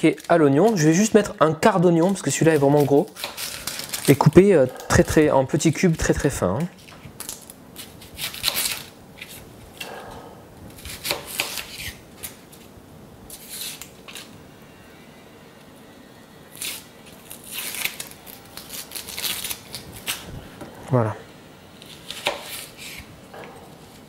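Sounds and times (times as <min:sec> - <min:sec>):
onion skin crackling: 0:00.0 - 0:09.9, 0:16.5 - 0:20.3.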